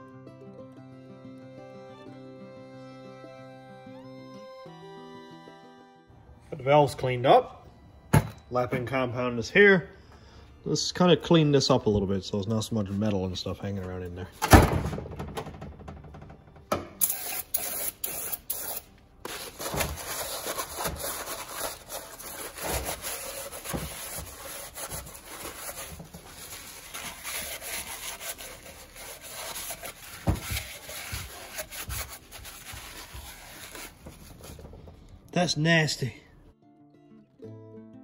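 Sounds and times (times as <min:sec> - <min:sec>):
rag scrubbing metal: 0:17.0 - 0:34.9.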